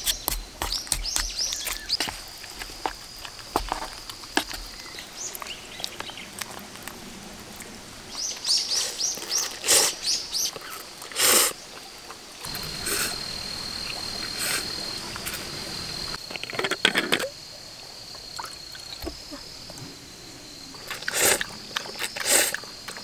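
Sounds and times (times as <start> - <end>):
bird chirping: 0.0 - 2.0
slurping noodles: 8.8 - 10.0, 20.8 - 23.0
faint high whine: 12.3 - 23.0.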